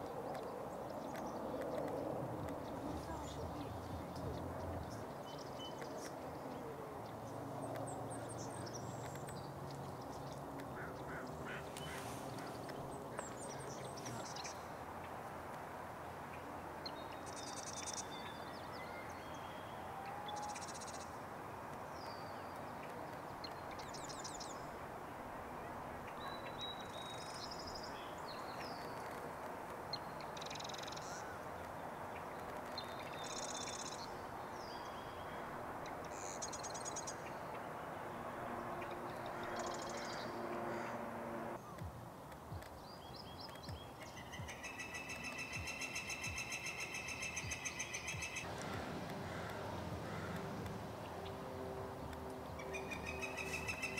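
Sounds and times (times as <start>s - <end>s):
steady background noise: 0.0s - 53.9s
ducks calling: 10.7s - 14.4s.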